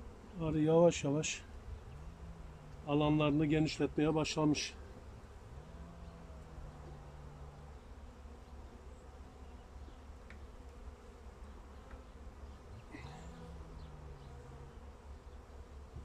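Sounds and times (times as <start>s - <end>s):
honeybees buzzing: 0.0s - 16.0s.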